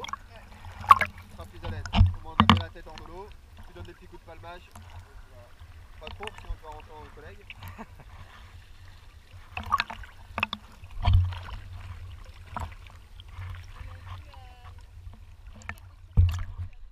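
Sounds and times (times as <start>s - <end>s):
small waves lapping: 0.0s - 16.9s
sharp water slaps: 0.8s - 3.3s.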